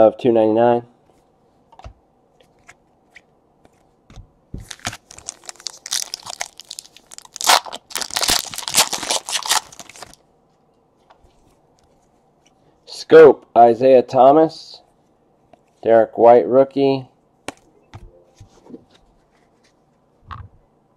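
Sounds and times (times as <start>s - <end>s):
plastic sleeve crinkling: 4.6s - 10.2s.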